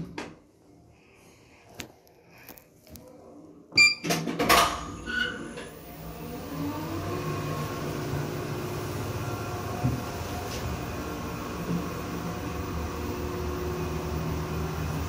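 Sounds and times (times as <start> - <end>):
platform lift drive humming: 5.7 - 15.0.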